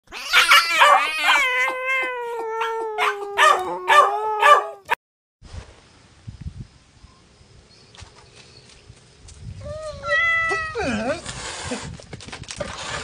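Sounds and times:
cat yowling: 0.1 - 5.0, 9.7 - 10.8
small dog barking: 0.3 - 1.5, 2.6 - 5.0.

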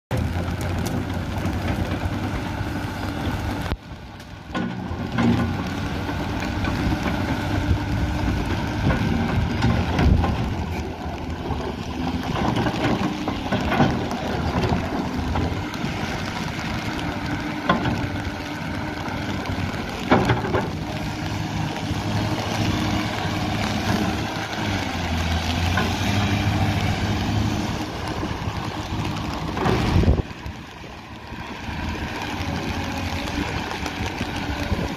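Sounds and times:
excavator diesel engine running: 0.1 - 34.9.

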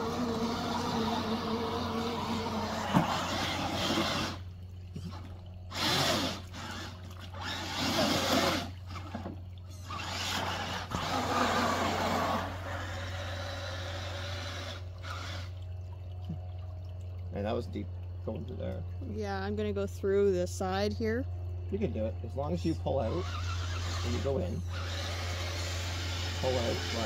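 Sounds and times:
toy truck electric motors whirring: 0.0 - 15.6, 22.9 - 27.0
creek water: 0.0 - 27.0.

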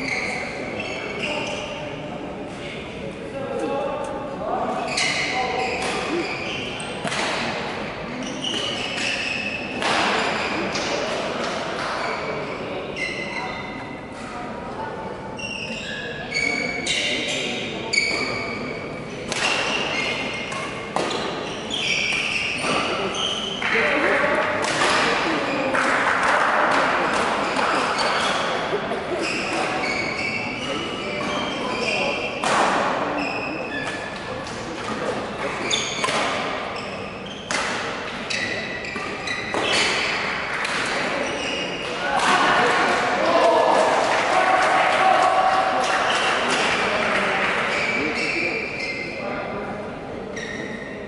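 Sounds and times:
shoes squeaking on court floor: 0.0 - 1.8, 4.8 - 7.6, 8.2 - 10.8, 11.8 - 14.0, 15.4 - 23.7, 27.1 - 42.1, 47.6 - 49.3, 50.3 - 51.0
racket hitting shuttlecock: 7.0 - 7.6, 19.3 - 19.9, 24.1 - 28.3, 36.0 - 36.6, 37.5 - 38.1
racket striking shuttlecock: 37.5 - 37.9.

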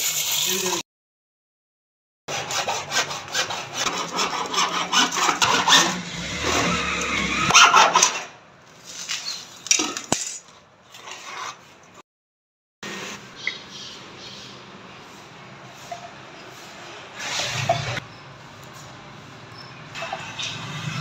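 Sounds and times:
hacksaw cutting plastic pipe: 2.3 - 8.4.

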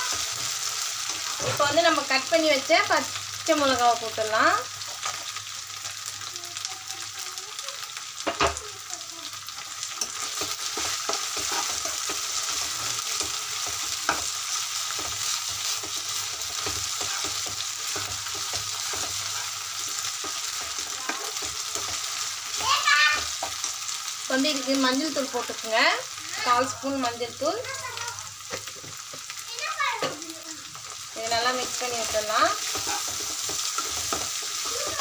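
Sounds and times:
spatula scraping a pan: 0.0 - 2.1, 9.5 - 25.6, 30.8 - 35.0
vegetables sizzling in hot oil: 0.0 - 35.0.

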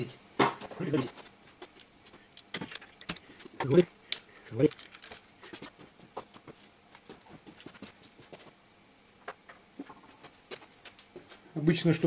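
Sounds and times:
hand tools clicking and knocking: 1.6 - 5.2.

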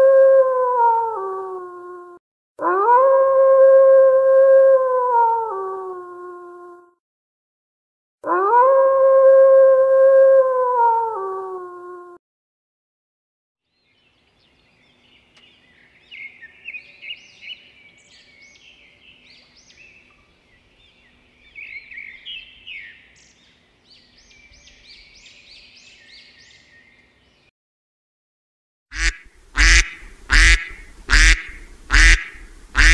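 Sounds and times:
long howl falling in pitch: 0.0 - 6.9, 8.2 - 12.2
warbler singing high chirps: 13.7 - 27.5.

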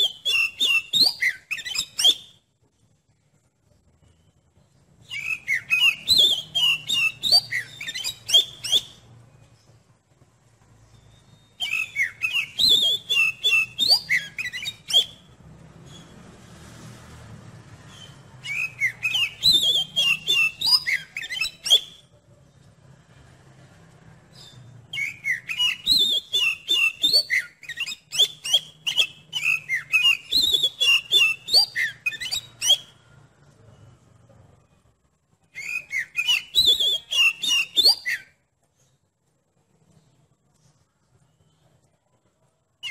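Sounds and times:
bird singing whistled phrases: 0.0 - 2.4, 5.0 - 9.1, 11.0 - 16.1, 17.9 - 22.1, 24.3 - 33.0, 35.5 - 38.4.

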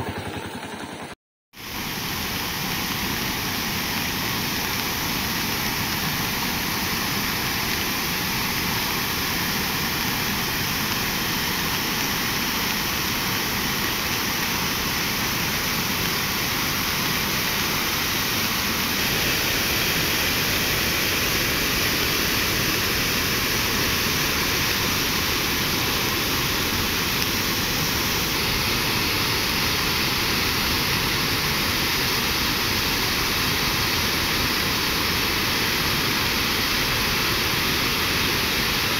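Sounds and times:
floodwater rushing: 1.6 - 38.9.

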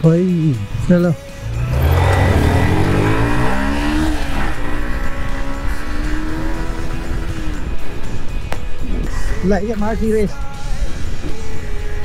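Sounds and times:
motorcycle engine accelerating: 1.4 - 8.2.

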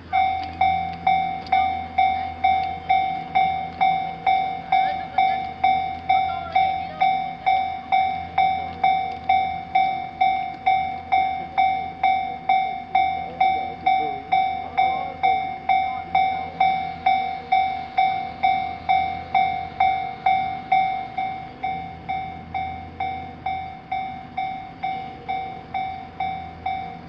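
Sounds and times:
level crossing alarm dinging: 0.0 - 27.0.

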